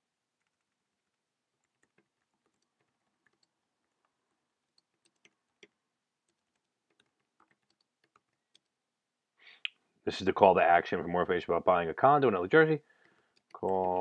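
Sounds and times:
keyboard typing: 0.4 - 8.8, 13.0 - 14.0.

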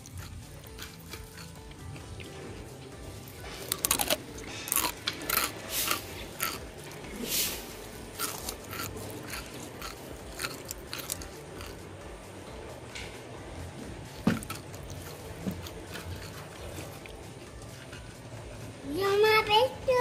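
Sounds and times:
chips crunching while chewed: 0.0 - 2.4, 3.3 - 11.9, 14.1 - 18.2.

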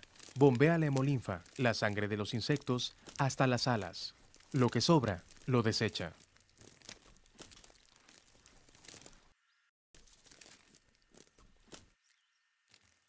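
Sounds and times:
faint crackling and rustling ticks: 0.0 - 9.2.

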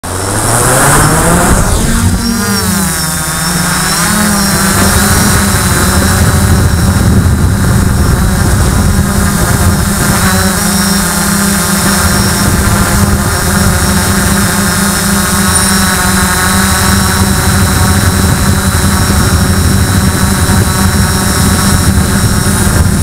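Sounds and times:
quadcopter motors and propellers: 0.0 - 23.0.

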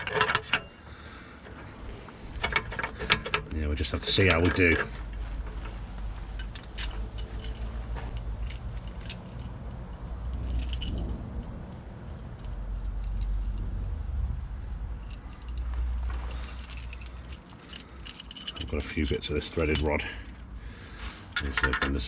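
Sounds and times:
loose metal parts clinking: 0.0 - 14.0, 14.6 - 22.0
low rumble: 5.0 - 18.1
metallic ring: 6.4 - 14.0, 15.0 - 20.4.

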